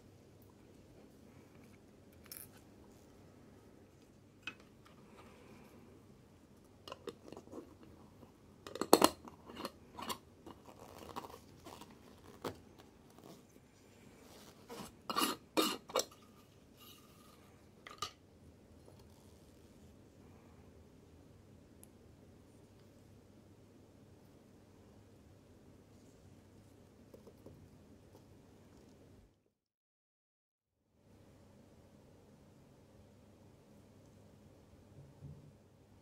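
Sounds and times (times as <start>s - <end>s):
metal lid turning on glass jar: 14.7s - 16.2s.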